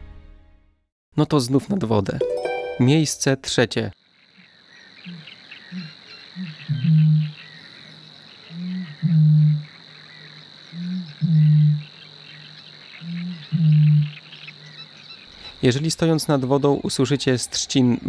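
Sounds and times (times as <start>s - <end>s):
faint small animal calls: 4.4s - 15.6s.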